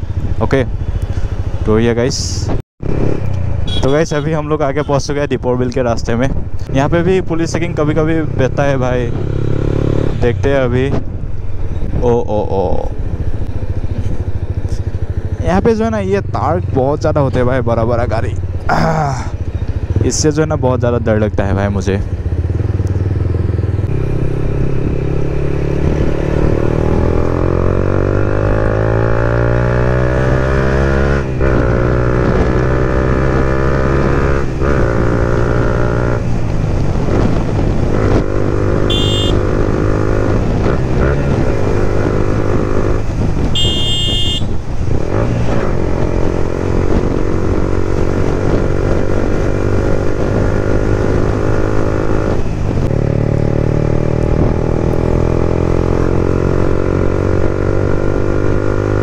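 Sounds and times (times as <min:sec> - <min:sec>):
motorcycle engine accelerating: 0:06.5 - 0:59.0
short high beeps: 0:38.9 - 0:39.5, 0:43.6 - 0:44.4.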